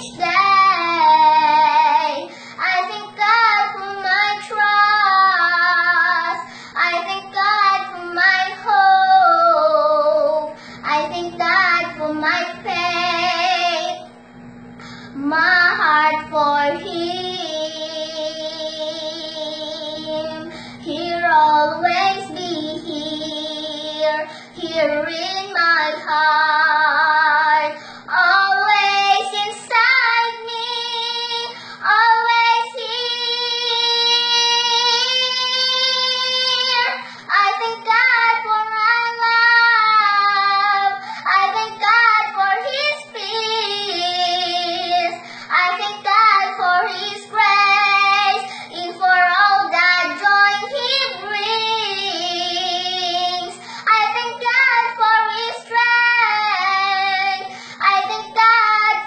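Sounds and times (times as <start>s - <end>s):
girl singing: 0.0s - 14.1s, 15.0s - 59.0s.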